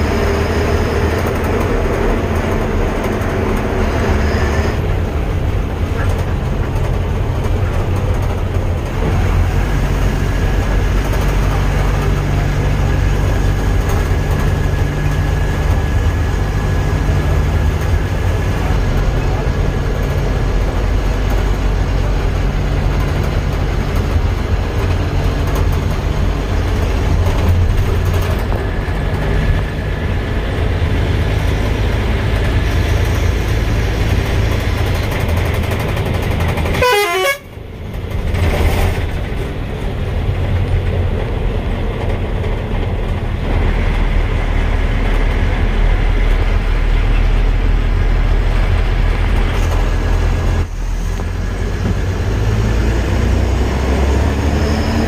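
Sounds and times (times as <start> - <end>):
vehicle engine and road noise: 0.0 - 55.0
car horn: 36.7 - 37.6.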